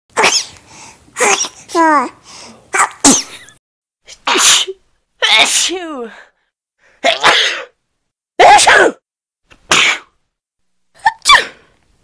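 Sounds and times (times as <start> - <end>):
person sneezing: 0.2 - 0.6, 1.2 - 1.7, 2.8 - 3.5, 4.1 - 4.8, 7.0 - 7.8, 8.4 - 9.0, 9.7 - 10.2, 11.0 - 11.7.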